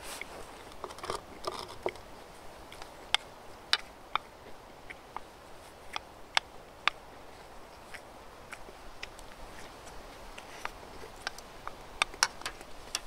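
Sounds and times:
sharp clicks and crunches: 0.0 - 2.1, 7.7 - 13.0
chewing: 0.0 - 13.0
rustle: 0.0 - 13.0.

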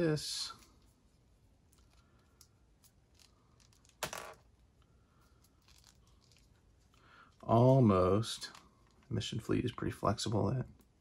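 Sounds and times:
faint plastic clicks and rubbing: 5.2 - 7.7.

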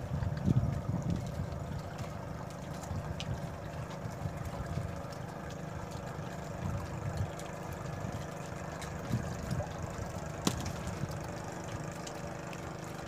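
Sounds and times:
wind buffeting microphone: 0.0 - 5.0, 9.0 - 11.2
engine humming: 0.0 - 13.0.

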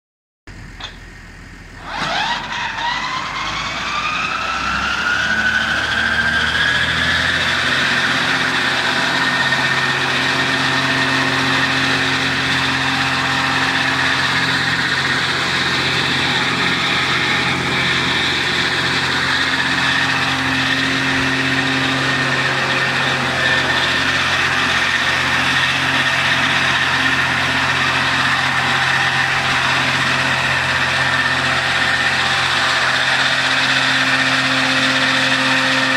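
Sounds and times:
disc mower whine: 0.5 - 35.9
tractor engine drone: 0.5 - 35.9.

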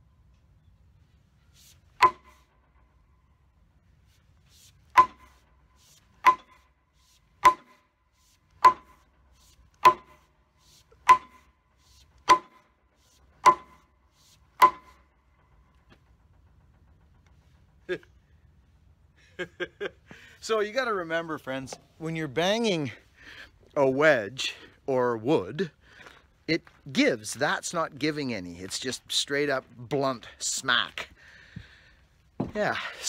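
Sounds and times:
axe head striking: 2.0 - 2.4, 5.0 - 5.4, 6.2 - 6.6, 7.4 - 7.8, 8.6 - 9.0, 9.8 - 10.2, 11.0 - 11.5, 12.2 - 12.6, 13.4 - 13.8, 14.6 - 15.0.

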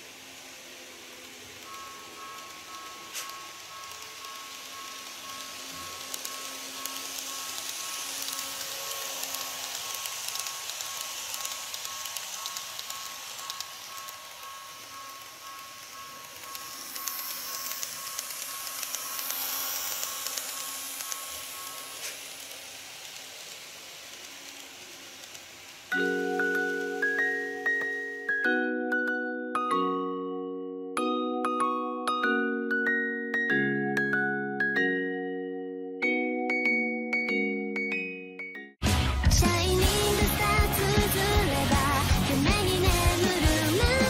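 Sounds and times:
model train motor whine: 0.0 - 28.4, 39.4 - 44.0
wheels hissing on rail: 0.0 - 28.5, 39.3 - 44.0
bell-like tune: 1.4 - 23.5, 25.9 - 38.8.

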